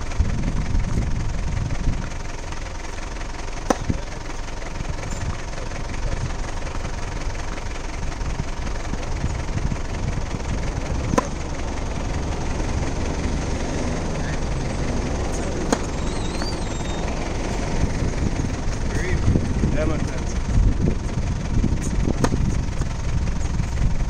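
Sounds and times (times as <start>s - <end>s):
low rumble: 0.0s - 24.0s
tennis ball knocks: 3.6s - 4.2s, 11.0s - 11.6s, 15.3s - 16.6s, 22.2s - 22.9s.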